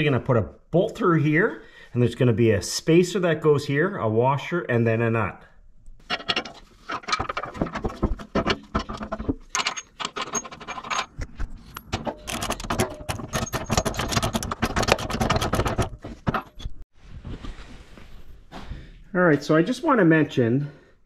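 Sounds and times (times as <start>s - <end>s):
metal parts clinking and scraping: 6.0s - 16.8s.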